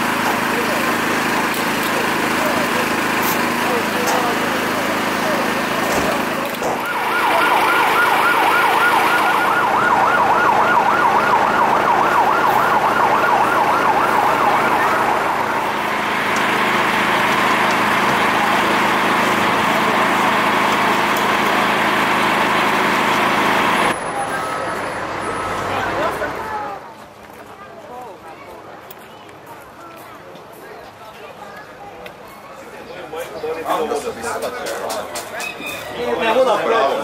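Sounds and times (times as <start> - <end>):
steady loud noise: 0.0 - 24.2
siren yelping: 6.6 - 15.8.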